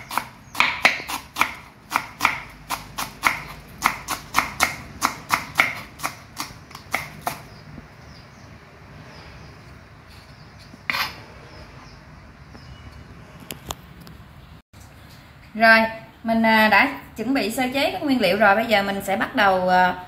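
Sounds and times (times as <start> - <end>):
cleaver chopping on wooden board: 0.0 - 7.5.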